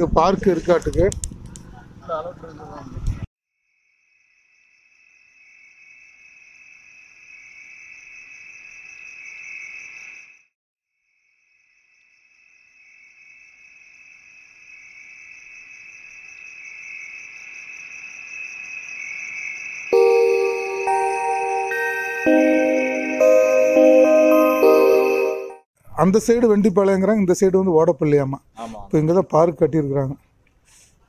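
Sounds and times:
shrill insect trill: 11.3 - 22.6.

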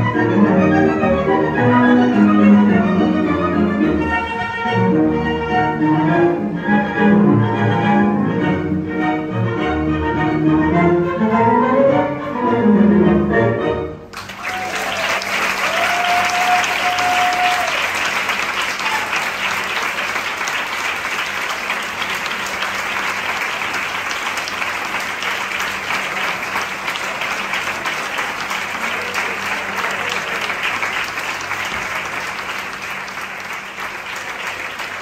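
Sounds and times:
tango music: 0.0 - 14.3, 17.5 - 35.0
audience applauding: 14.1 - 35.0.

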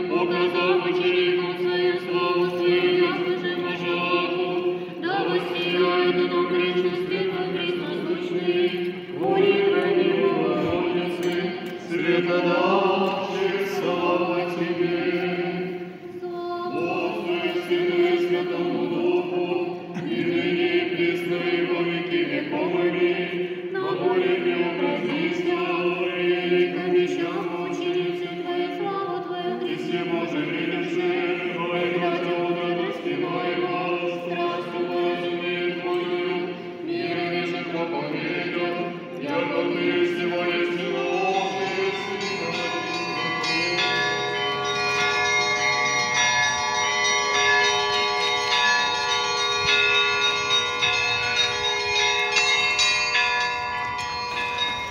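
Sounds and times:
voices singing a chant: 0.0 - 45.4.

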